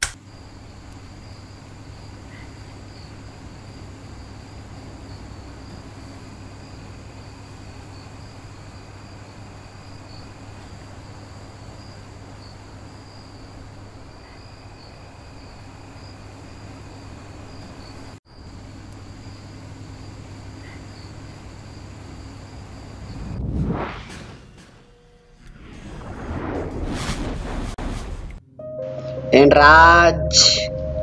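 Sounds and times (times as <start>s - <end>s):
constant low hum: 0.0s - 28.5s
crickets chirping: 0.2s - 23.4s.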